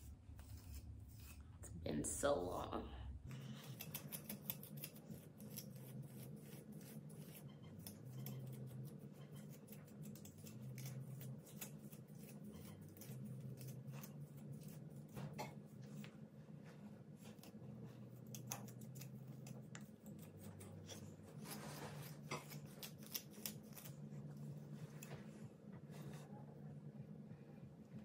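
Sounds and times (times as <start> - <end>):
comb raking through hair: 3.4 - 25.3.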